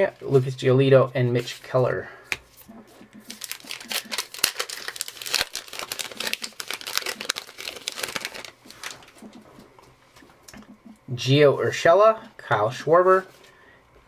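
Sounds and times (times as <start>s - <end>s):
foil wrapper tearing and crinkling: 3.2s - 9.2s.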